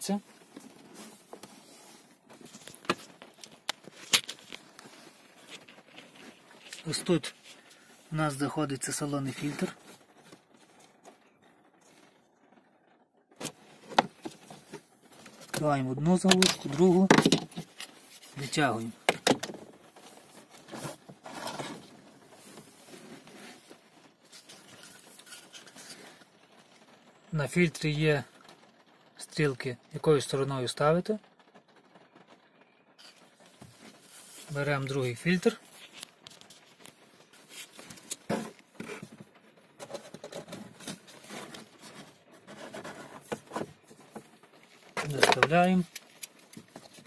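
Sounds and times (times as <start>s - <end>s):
filter scraping against plastic: 16.2s - 26.2s, 33.0s - 47.0s.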